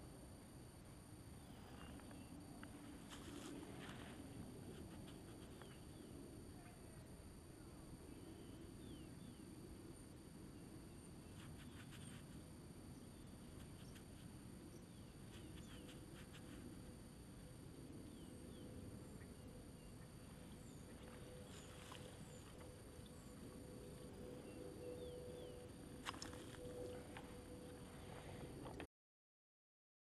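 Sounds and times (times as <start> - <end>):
low steady rumble: 0.0 - 28.9.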